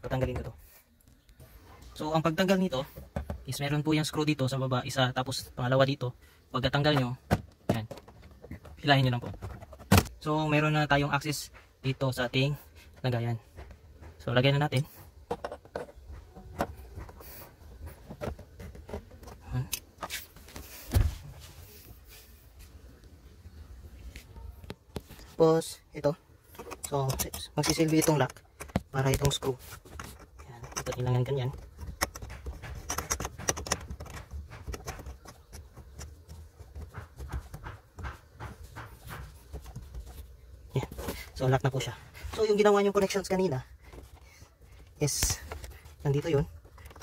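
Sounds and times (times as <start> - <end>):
metal and plastic clicks and scrapes: 26.4 - 38.2, 43.8 - 47.0.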